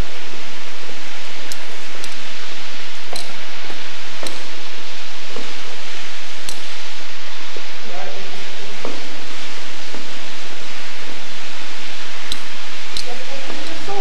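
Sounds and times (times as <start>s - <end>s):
running water echoing in tunnel: 0.0s - 14.0s
faint clicks: 1.5s - 2.2s, 3.1s - 3.4s, 6.4s - 6.7s, 12.3s - 13.8s.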